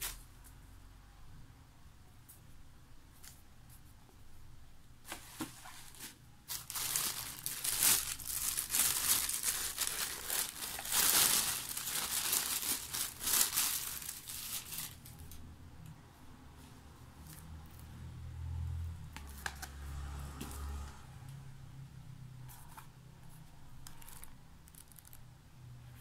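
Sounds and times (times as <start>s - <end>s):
plastic bag crinkling and rustling: 5.1s - 15.3s.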